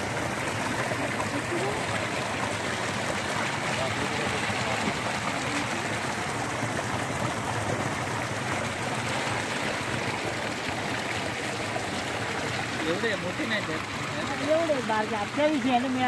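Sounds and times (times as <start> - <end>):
water flowing fast: 0.0 - 16.0.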